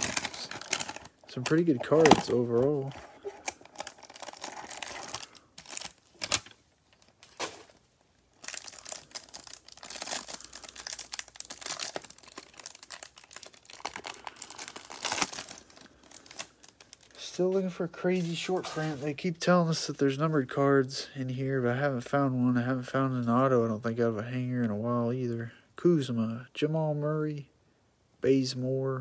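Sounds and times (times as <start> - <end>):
cellophane wrapper crinkling and tearing: 0.0 - 17.4.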